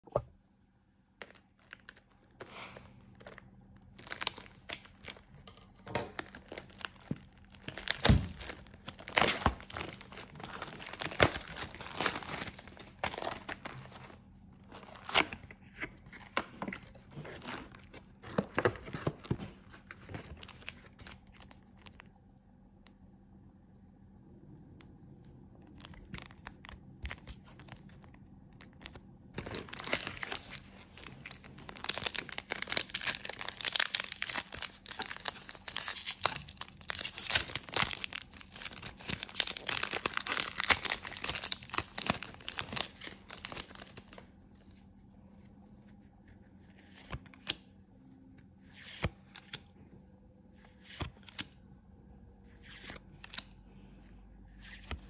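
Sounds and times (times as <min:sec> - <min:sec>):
wrapper tearing and crinkling: 0:03.2 - 0:13.8, 0:28.8 - 0:44.2.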